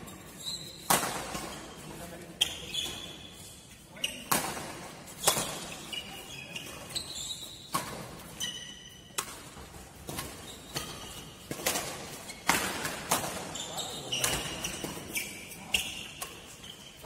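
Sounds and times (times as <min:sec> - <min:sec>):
shoes squeaking on court floor: 0:00.0 - 0:17.0
rackets striking a shuttlecock: 0:00.8 - 0:01.7, 0:04.1 - 0:06.9, 0:07.5 - 0:16.8.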